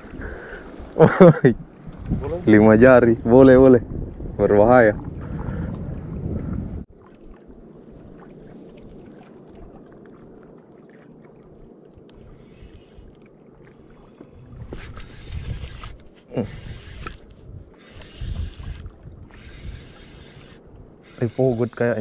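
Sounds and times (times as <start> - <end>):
water noise: 0.0 - 22.0
wind gusts: 0.0 - 22.0
fishing reel ticking: 12.1 - 13.2, 14.7 - 22.0.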